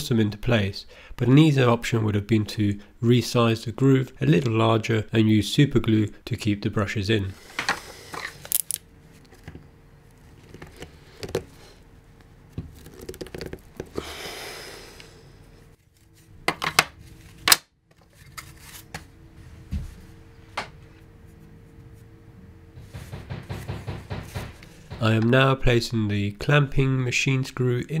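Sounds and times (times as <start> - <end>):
faint steady hum: 0.0 - 28.0
plastic parts clicking and knocking: 10.4 - 11.5, 12.6 - 14.0.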